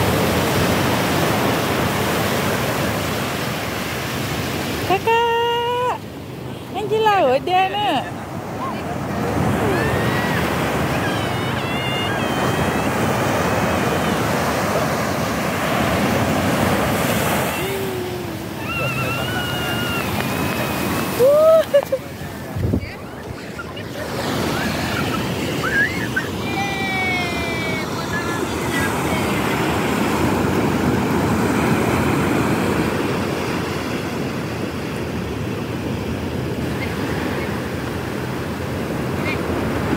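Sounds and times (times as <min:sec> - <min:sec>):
surf breaking on beach: 0:00.0 - 0:06.0, 0:06.8 - 0:39.9.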